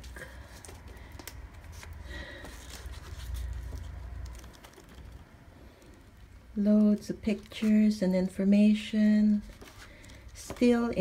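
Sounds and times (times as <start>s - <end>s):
book pages rustling: 0.0s - 6.1s, 6.7s - 8.2s, 9.3s - 11.0s.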